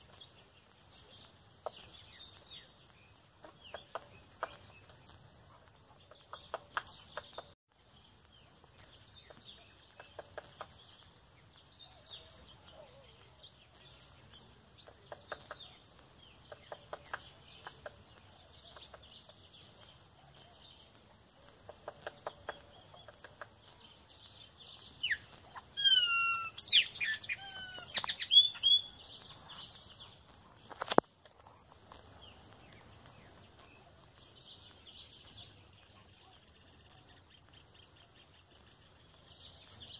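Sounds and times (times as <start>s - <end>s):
bird calls with sliding notes: 25.0s - 29.9s.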